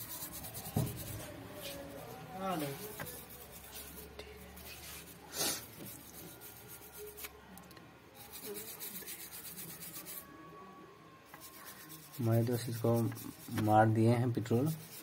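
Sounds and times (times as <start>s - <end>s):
toothbrush scrubbing circuit board: 8.2s - 10.2s, 11.3s - 13.8s, 14.7s - 15.0s.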